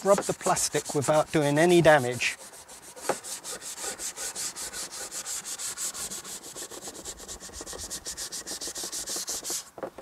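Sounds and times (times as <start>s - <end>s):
brush scrubbing a plastic panel: 0.0s - 9.9s.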